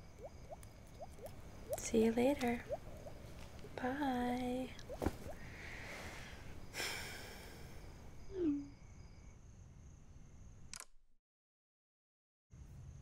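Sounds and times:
click: 10.7s - 10.9s.

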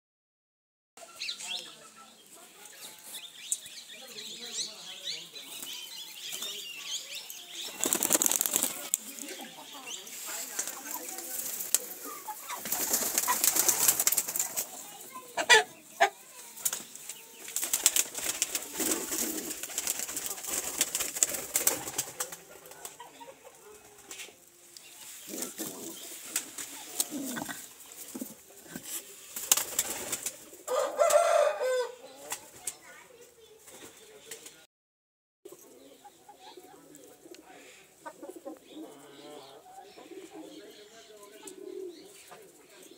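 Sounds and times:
pigeon wings flapping: 7.7s - 9.1s, 12.6s - 14.7s, 17.5s - 23.0s, 29.3s - 30.5s
pigeons shuffling: 7.7s - 9.4s, 10.1s - 15.2s, 16.6s - 22.9s, 25.2s - 30.6s
pigeon cooing: 17.9s - 20.9s, 25.2s - 32.4s, 35.5s - 42.9s.

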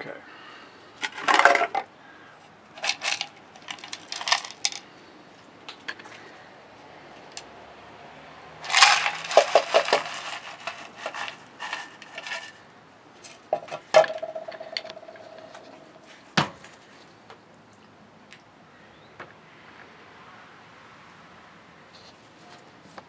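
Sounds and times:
coal clattering in ice crusher: 2.8s - 4.8s, 8.6s - 12.6s, 13.5s - 15.8s.

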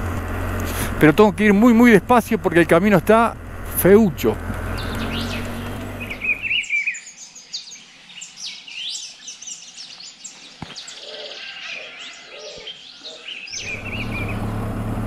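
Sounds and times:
low riding rumble: 0.0s - 6.6s, 13.6s - 15.0s
birds chirping and whistling: 4.6s - 14.6s.

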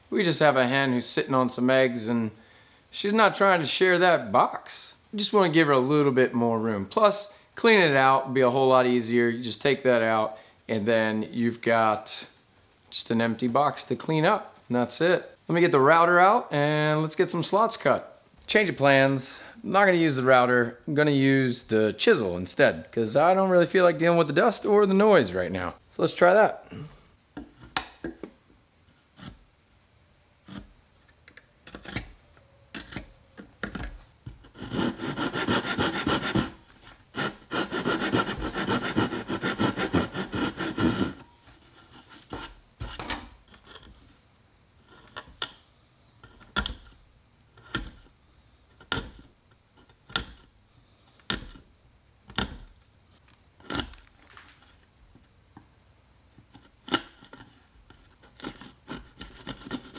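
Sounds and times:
hand saw cutting wood: 34.5s - 43.0s, 58.2s - 59.9s.

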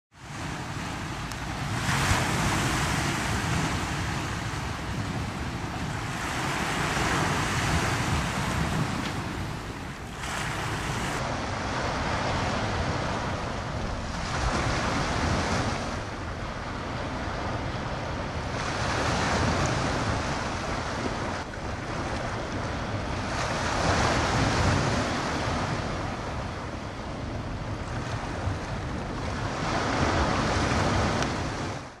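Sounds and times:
waves washing onto pebble shore: 0.2s - 13.2s
wind rumbling on microphone: 0.2s - 32.0s.

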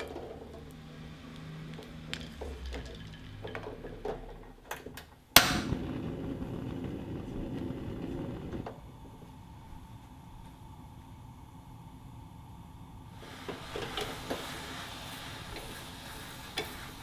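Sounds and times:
gas flame rushing: 5.3s - 17.0s
gas igniter click: 5.4s - 6.0s.

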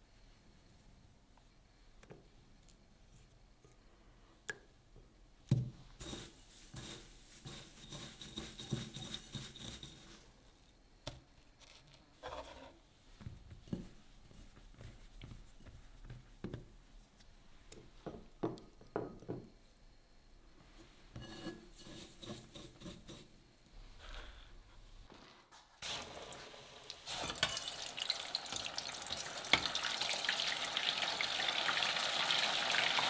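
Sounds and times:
gritty breadcrumb rustle: 6.0s - 10.5s.

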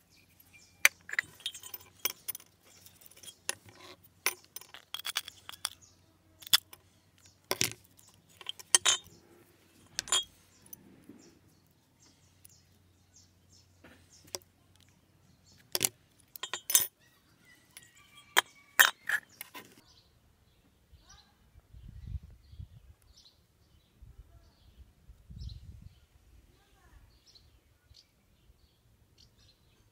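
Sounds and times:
metal bell pieces clinking: 0.3s - 5.8s, 6.4s - 9.2s, 9.8s - 10.8s, 15.7s - 17.0s, 17.7s - 19.6s.

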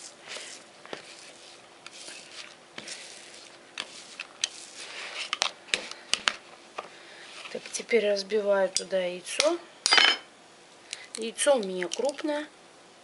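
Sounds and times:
masher squishing cottage cheese: 0.0s - 6.4s.

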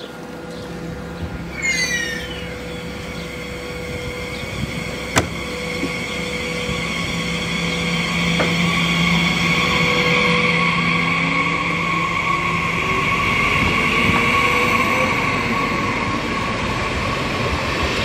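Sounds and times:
electric train whine and rolling: 0.0s - 18.0s
falling squeal: 1.4s - 13.4s.

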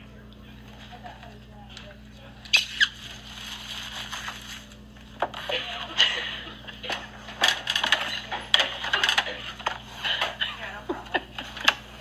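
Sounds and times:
packaging crinkling and rustling: 3.0s - 5.2s.

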